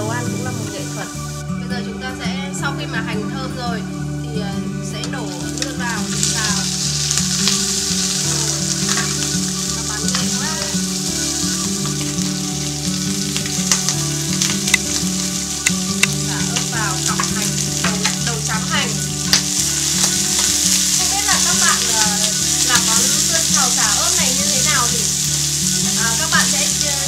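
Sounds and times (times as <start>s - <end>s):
food sizzling in a frying pan: 0.0s - 1.5s, 2.6s - 27.0s
chopsticks clicking against pan: 5.6s - 10.3s, 13.2s - 18.4s.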